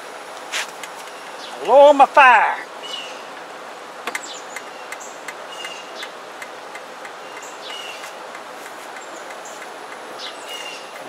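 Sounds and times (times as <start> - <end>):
steady outdoor hiss: 0.0 - 11.0
birds chirping: 0.9 - 11.0
light irregular ticks: 3.3 - 10.5.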